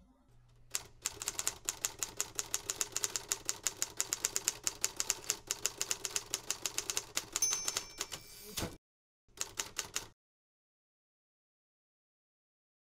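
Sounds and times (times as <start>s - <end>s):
typewriter bell ring: 7.3s - 8.6s.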